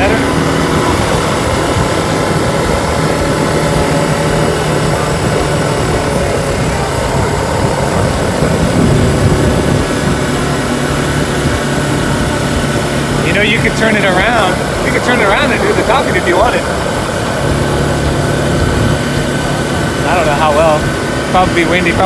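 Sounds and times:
atv engine drone: 0:00.0 - 0:22.0.

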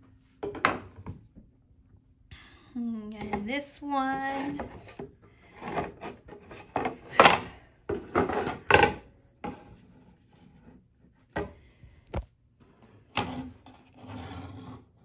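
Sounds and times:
frames scraping across tabletop: 0:04.1 - 0:11.5, 0:12.9 - 0:15.0.

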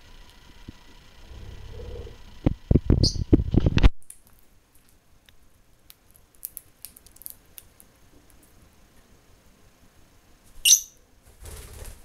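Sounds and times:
lovebird chirp: 0:03.0 - 0:03.3, 0:10.6 - 0:11.0.

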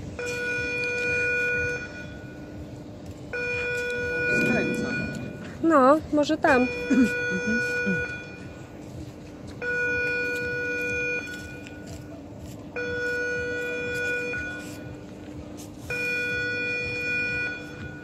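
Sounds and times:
steady low hum: 0:00.0 - 0:18.0
buzzer-like warning beep: 0:00.2 - 0:02.5, 0:03.3 - 0:05.5, 0:06.4 - 0:08.5, 0:12.8 - 0:14.9, 0:15.9 - 0:18.0.

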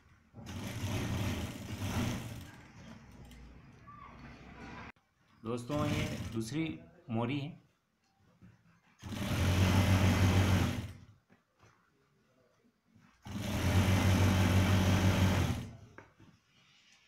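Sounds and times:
electric sewing machine running: 0:00.4 - 0:02.6, 0:05.8 - 0:06.4, 0:09.0 - 0:11.0, 0:13.2 - 0:15.8.

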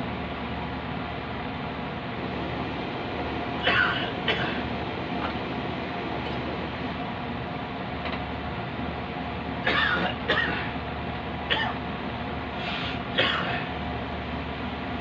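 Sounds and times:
torch flame hissing: 0:12.4 - 0:13.2
short breathy bursts: 0:12.6 - 0:13.0.

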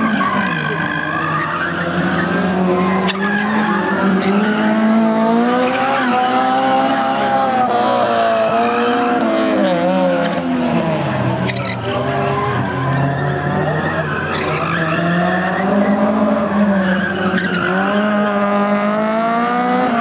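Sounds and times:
race car engines revving: 0:00.0 - 0:20.0
tyres squealing: 0:11.4 - 0:16.2.

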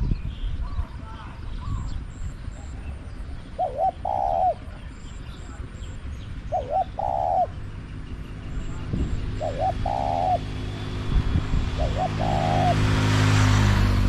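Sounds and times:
passing vehicle engine hum: 0:00.6 - 0:14.0
dove cooing: 0:02.6 - 0:13.2.

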